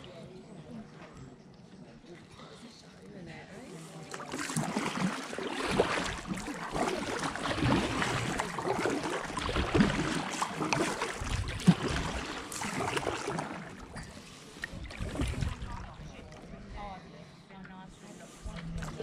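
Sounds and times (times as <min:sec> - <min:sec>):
paddle strokes splashing: 0:03.8 - 0:16.4
water dripping and lapping: 0:03.8 - 0:16.8, 0:18.3 - 0:19.0.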